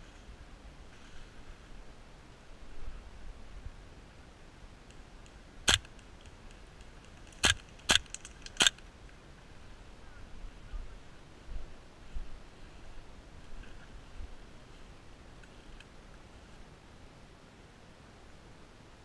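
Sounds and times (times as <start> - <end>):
airsoft rifle shots: 5.7 - 6.0, 7.3 - 8.8.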